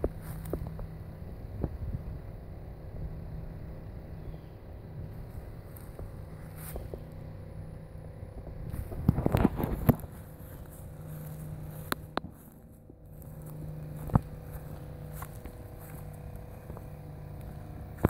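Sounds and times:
low motor hum: 0.0 - 18.0
rustling and scraping: 8.5 - 18.0.

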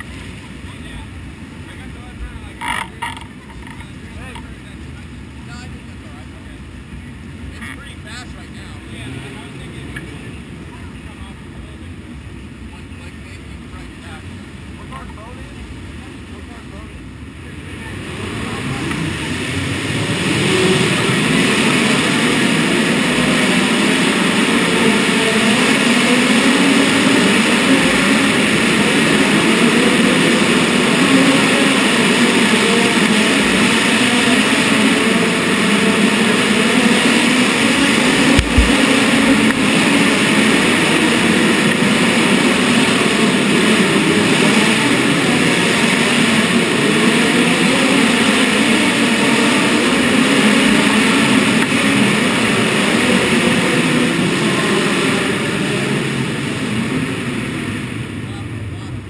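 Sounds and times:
race car engine idling: 0.0 - 56.6
short low thump: 38.3 - 38.8.

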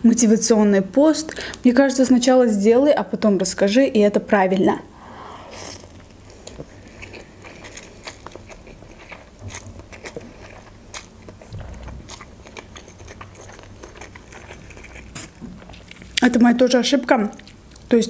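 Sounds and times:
person chewing noodles: 5.4 - 16.2.

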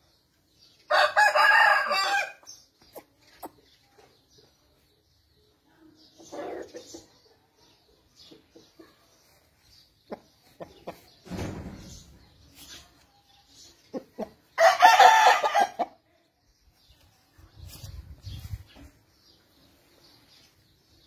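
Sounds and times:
rooster crowing: 0.9 - 2.4.

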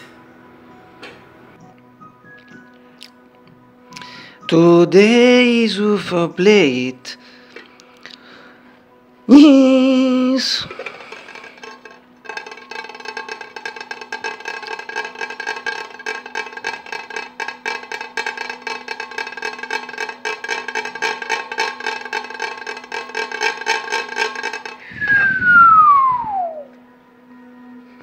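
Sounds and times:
ceramic plate rattling: 10.6 - 24.9
falling whistle-like tone: 24.9 - 26.8.

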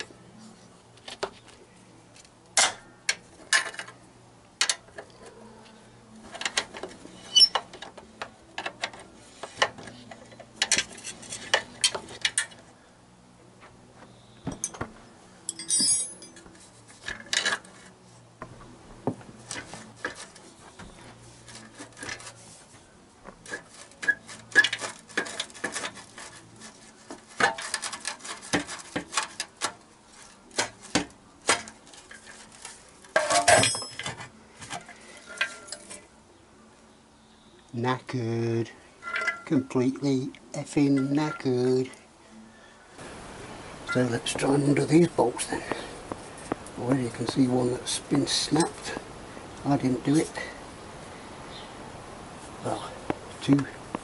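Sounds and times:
spanners clinking on metal bolt: 14.6 - 14.8, 15.5 - 16.4, 33.1 - 34.2, 39.0 - 39.7.

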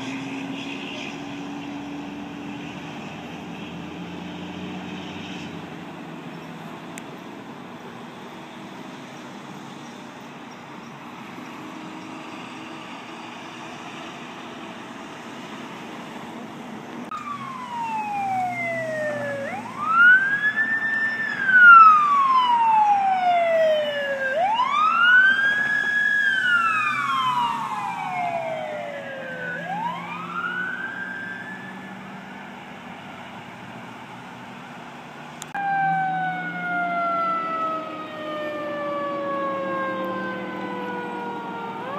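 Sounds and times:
emergency vehicle siren wailing: 0.0 - 9.9, 17.1 - 34.1, 35.4 - 41.9
distant city hum: 0.0 - 41.9.

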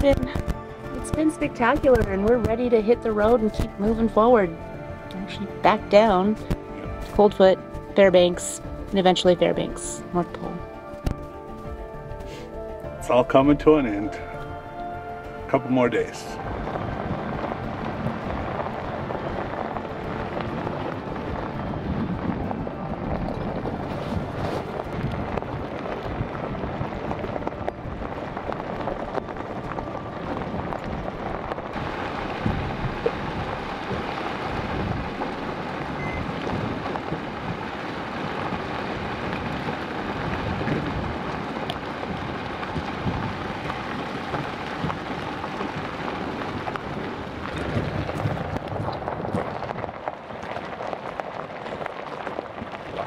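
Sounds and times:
wind buffeting microphone: 16.4 - 53.0.

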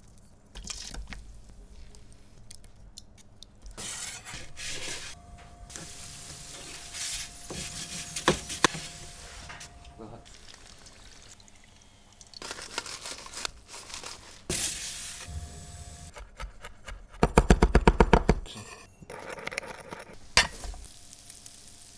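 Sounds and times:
hot roasting tray hissing: 3.8 - 11.4, 14.5 - 16.1, 20.4 - 21.9.

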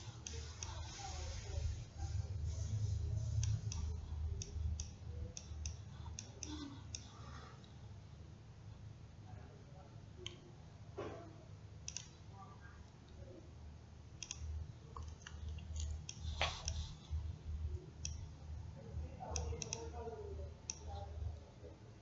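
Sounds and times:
computer mouse clicks: 2.5 - 7.2, 11.8 - 12.2, 14.2 - 17.0, 18.0 - 18.4, 19.2 - 21.1.

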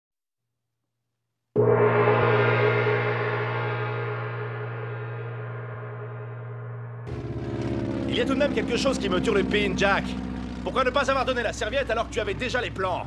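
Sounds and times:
gong ringing: 1.6 - 11.8.

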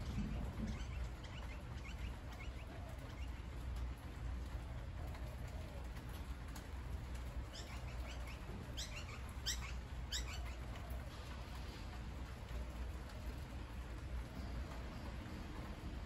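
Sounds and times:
bird calling: 0.0 - 3.8, 7.5 - 11.3
rain falling on leaves: 0.0 - 16.0.

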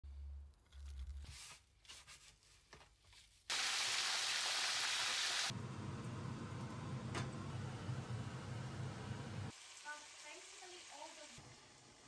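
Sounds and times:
hot oil sizzling: 3.5 - 12.0.

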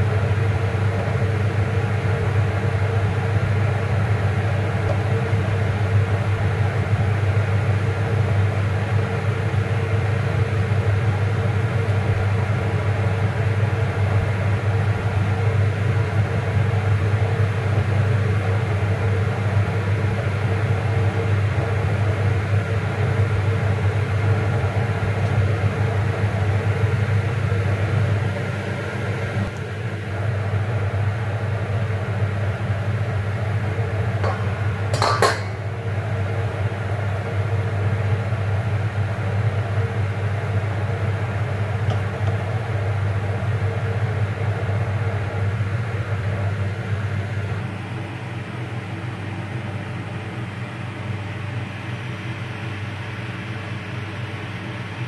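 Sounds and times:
pan clinking: 34.2 - 35.6.

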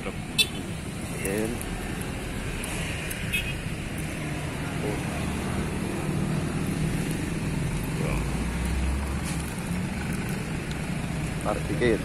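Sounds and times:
road traffic passing: 0.0 - 12.0.

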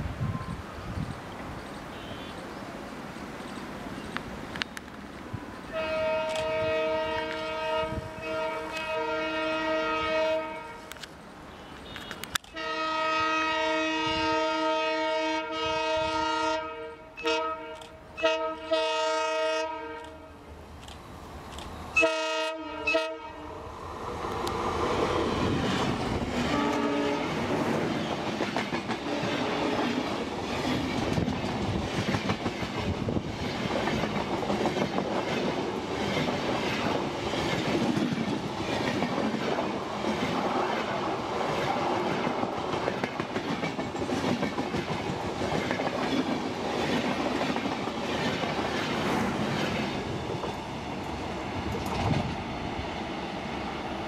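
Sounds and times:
passing train rumble: 0.0 - 54.0
locomotive horn blasts: 1.9 - 2.4, 5.7 - 20.4, 22.0 - 23.6, 26.5 - 27.4
train wheels clacking over rail joints: 24.3 - 50.6.

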